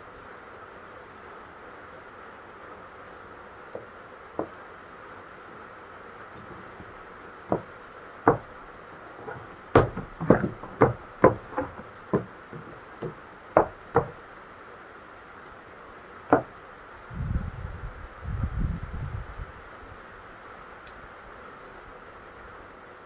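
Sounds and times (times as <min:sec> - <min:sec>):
rain hissing: 0:00.0 - 0:23.0
heels knocking on steps: 0:06.4 - 0:14.2, 0:16.3 - 0:16.5.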